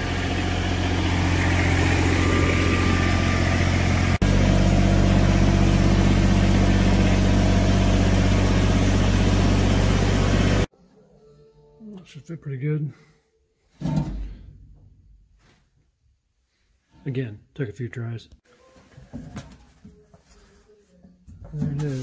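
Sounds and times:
engine idling: 0.0s - 10.7s.

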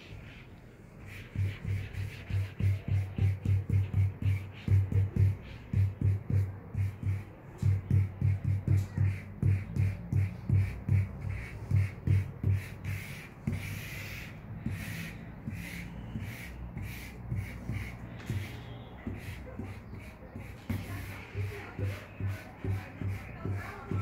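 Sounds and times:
background music with low beat: 2.6s - 12.8s.

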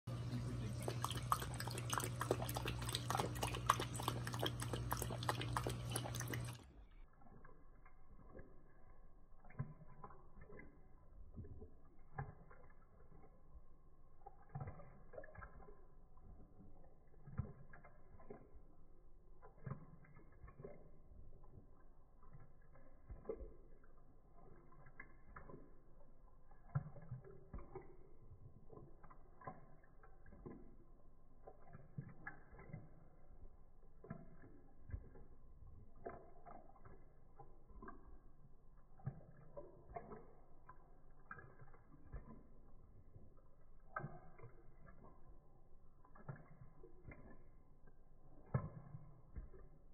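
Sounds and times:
low steady hum: 0.1s - 49.9s
puppy lapping milk from a bowl: 0.1s - 49.9s.

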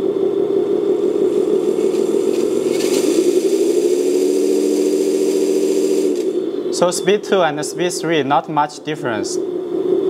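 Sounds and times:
electric motor and gearbox whining: 0.9s - 6.9s.

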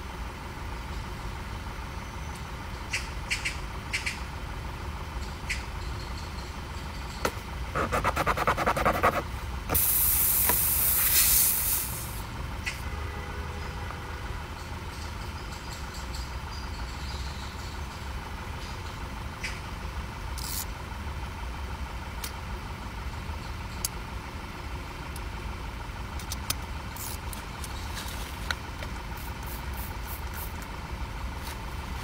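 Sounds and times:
steady low hum: 0.0s - 32.0s
tools clicking and scraping: 20.4s - 20.7s, 26.2s - 29.6s.

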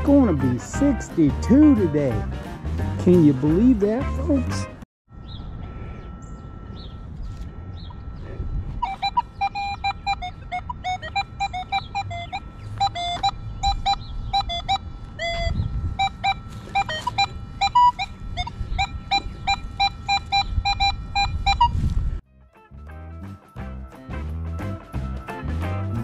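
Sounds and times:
metal detector short beeps: 5.2s - 22.0s.

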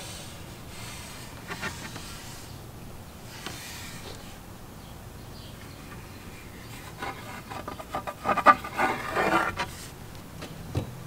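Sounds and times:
wooden paddles knocking and scraping: 5.6s - 10.9s.

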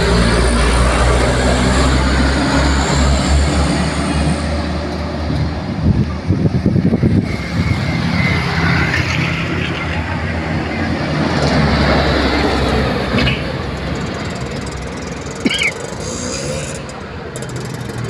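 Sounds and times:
truck diesel engine passing: 0.0s - 18.0s
motorcycles sputtering by: 7.2s - 18.0s.

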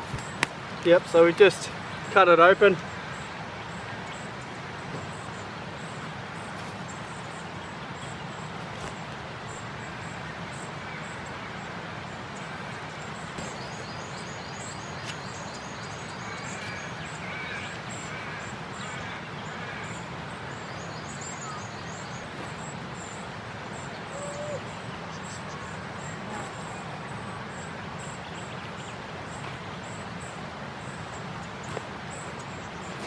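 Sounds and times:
steady background hiss: 0.0s - 33.0s
birds calling: 12.2s - 33.0s.

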